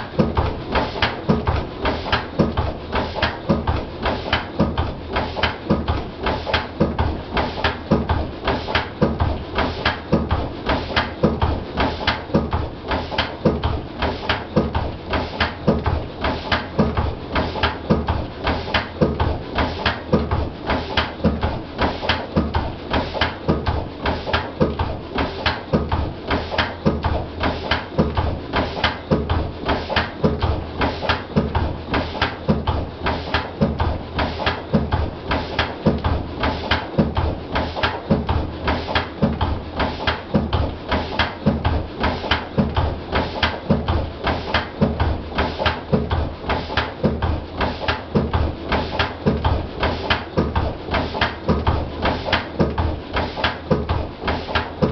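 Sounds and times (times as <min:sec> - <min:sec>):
diesel engine knocking steadily: 0:00.0 - 0:54.9.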